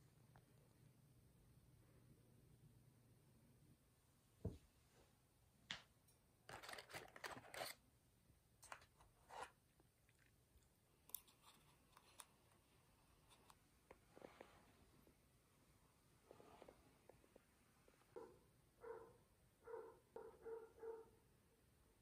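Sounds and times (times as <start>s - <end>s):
crinkling and rustling: 6.5s - 7.8s, 8.6s - 10.4s.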